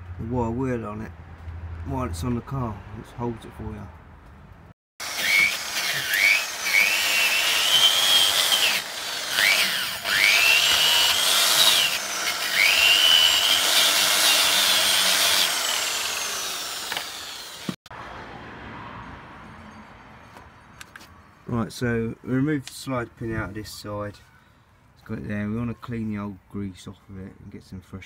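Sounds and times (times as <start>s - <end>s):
angle grinder wire wheel on metal: 5.0s - 17.8s.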